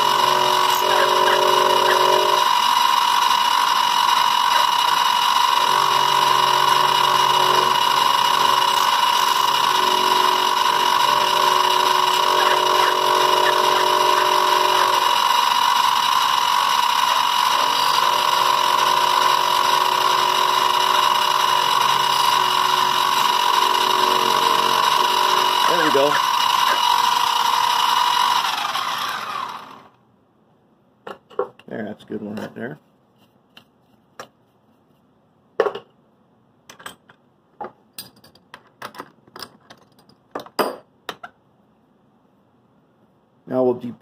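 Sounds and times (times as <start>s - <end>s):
end mill cutting metal: 0.0s - 29.9s
milling machine motor whine: 0.0s - 30.0s.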